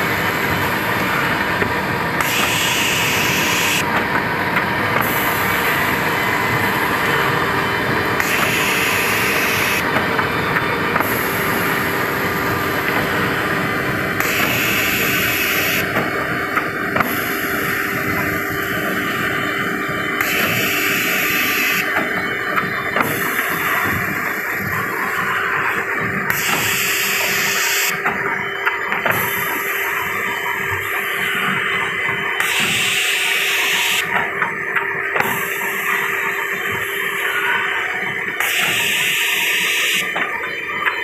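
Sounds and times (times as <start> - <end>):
boring machine running: 0.0 - 41.0.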